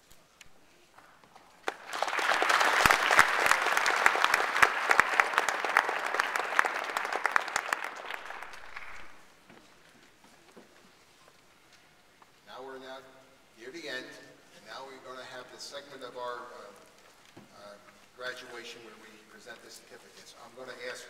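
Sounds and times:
audience applauding: 0:01.6 - 0:09.3.

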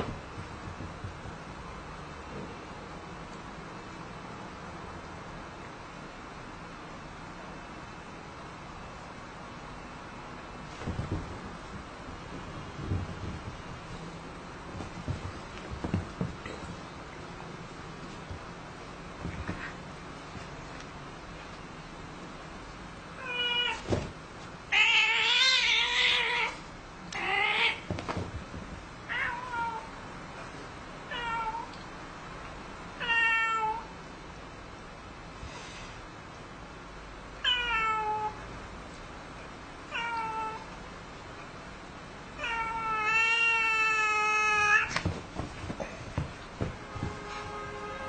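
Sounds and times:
cat yowling: 0:37.4 - 0:38.4, 0:39.9 - 0:40.6, 0:42.4 - 0:44.9.

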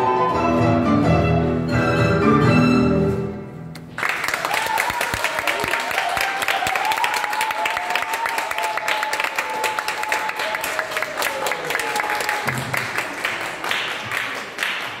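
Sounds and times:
audience applauding: 0:03.8 - 0:15.0.

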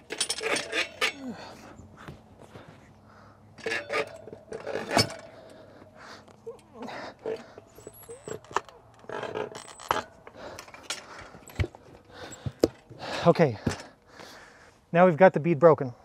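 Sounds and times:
metal clanks and knocks: 0:00.0 - 0:01.4, 0:03.6 - 0:05.6
short squeaks: 0:07.2 - 0:10.8.

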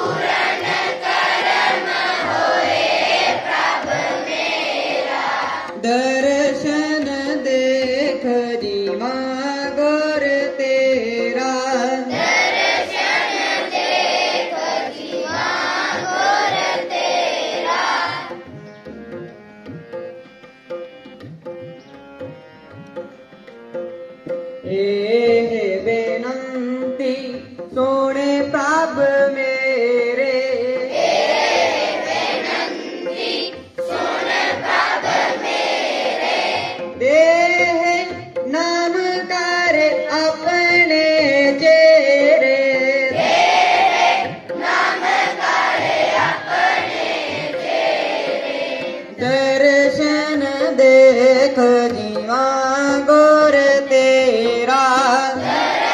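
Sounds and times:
children singing: 0:00.0 - 0:05.8, 0:12.1 - 0:18.5, 0:30.8 - 0:37.0, 0:43.1 - 0:49.3, 0:55.2 - 0:55.9
harmonium: 0:00.0 - 0:55.9.

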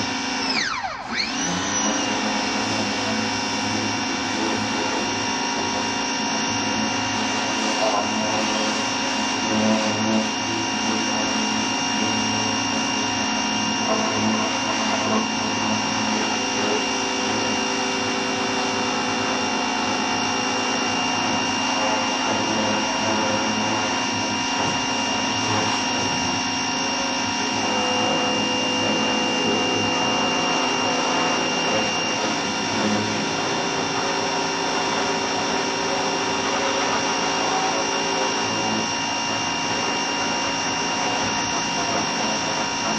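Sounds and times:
vacuum cleaner motor whine: 0:00.0 - 0:42.9.

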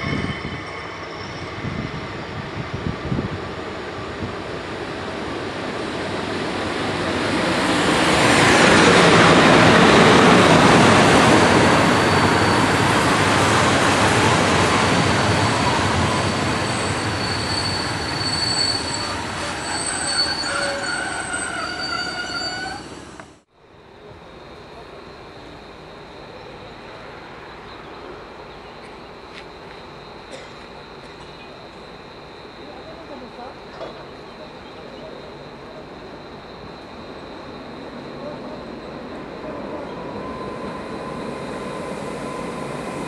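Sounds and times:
metallic wheel squeals: 0:00.0 - 0:02.8, 0:11.4 - 0:13.1, 0:15.2 - 0:23.2
train passing rumble: 0:00.0 - 0:43.0.

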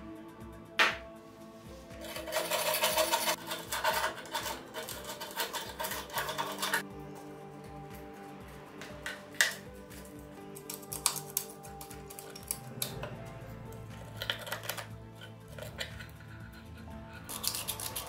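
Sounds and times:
background music: 0:00.0 - 0:18.0
screwdriver scraping rusty metal: 0:02.0 - 0:06.8, 0:13.7 - 0:18.0.

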